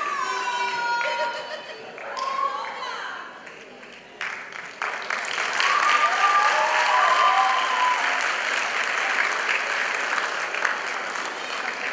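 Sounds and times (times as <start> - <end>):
audience applauding and cheering: 3.4 - 11.9.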